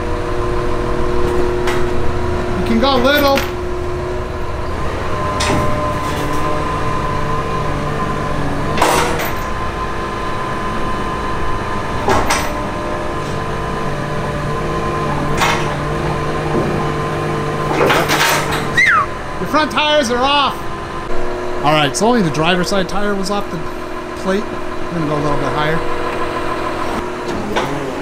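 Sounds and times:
diesel engine running under load: 0:00.0 - 0:28.0
low hum: 0:00.0 - 0:28.0.

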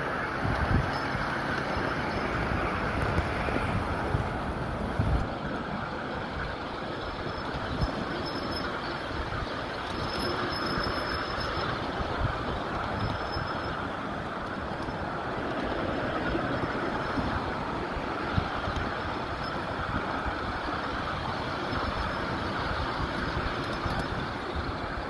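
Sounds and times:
steel wheels rumbling on rail: 0:00.0 - 0:25.0
faint high squeal: 0:07.1 - 0:12.2, 0:12.8 - 0:13.8.

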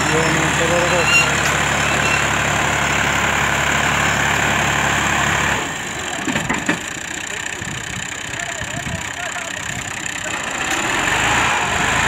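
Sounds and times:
tractor diesel engine straining: 0:00.0 - 0:12.0.

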